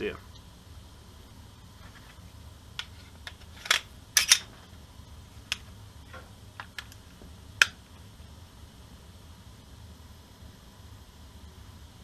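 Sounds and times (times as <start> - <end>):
pistol parts clicking and snapping: 2.8 - 4.5.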